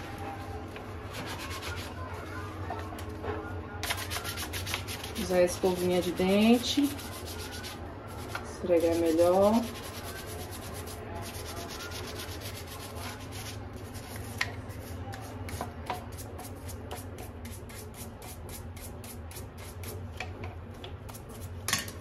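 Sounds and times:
toothbrush scrubbing plastic: 0:01.0 - 0:02.1, 0:03.8 - 0:20.0.

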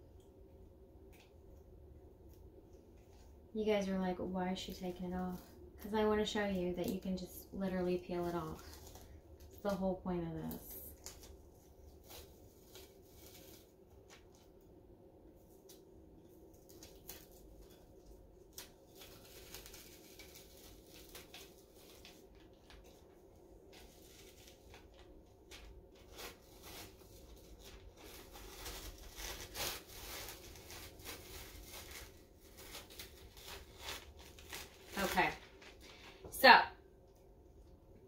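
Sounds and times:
adhesive sheet peeling crackle: 0:08.2 - 0:09.8, 0:10.4 - 0:14.6, 0:15.5 - 0:36.1.

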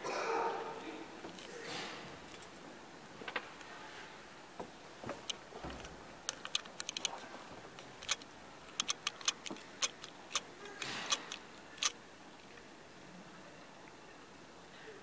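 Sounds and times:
light sharp clicks and ticks: 0:05.2 - 0:12.0.

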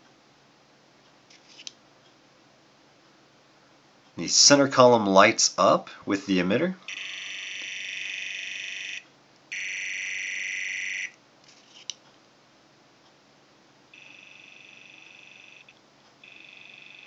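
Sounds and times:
high electronic tone: 0:06.9 - 0:11.2, 0:14.0 - 0:17.0
click: 0:11.8 - 0:12.2.

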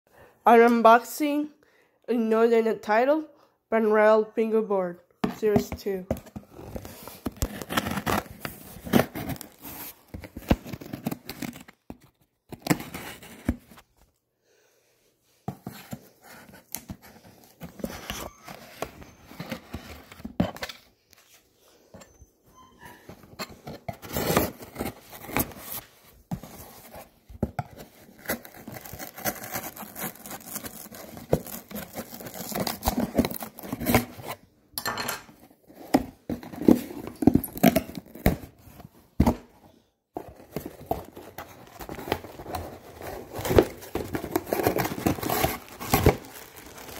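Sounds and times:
packing tape cut and torn: 0:27.7 - 0:34.3, 0:40.6 - 0:46.9.

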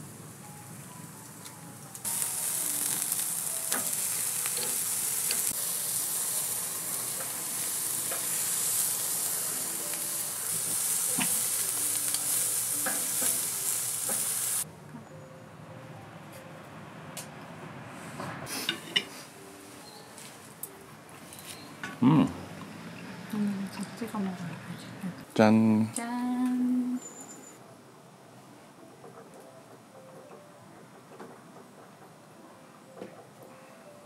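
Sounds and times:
meat sizzling on a grill: 0:00.0 - 0:14.6.

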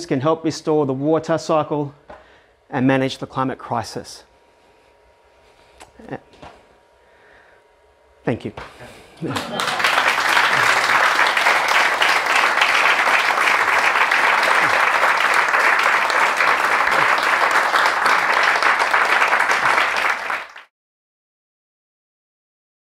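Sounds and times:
audience applauding: 0:09.2 - 0:20.7.

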